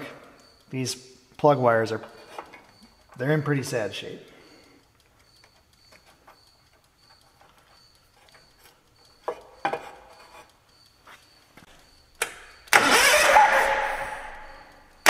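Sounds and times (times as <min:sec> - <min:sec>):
starter cranking engine: 0:12.2 - 0:14.8.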